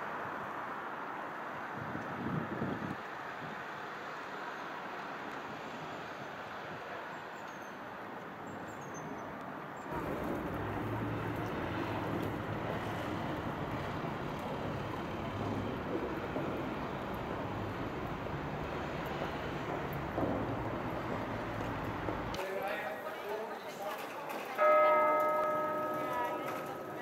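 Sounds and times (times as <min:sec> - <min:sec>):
distant traffic hum: 0:00.0 - 0:27.0
low drone: 0:09.9 - 0:20.7.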